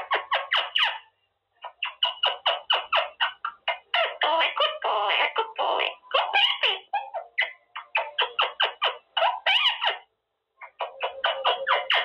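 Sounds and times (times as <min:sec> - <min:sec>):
parrot chattering: 0:00.0 - 0:12.0.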